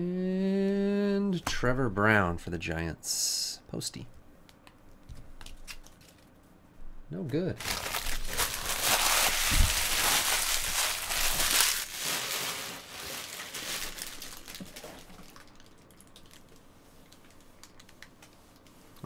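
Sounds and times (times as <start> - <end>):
plastic wrappers crinkling: 5.4 - 6.3, 7.6 - 19.0.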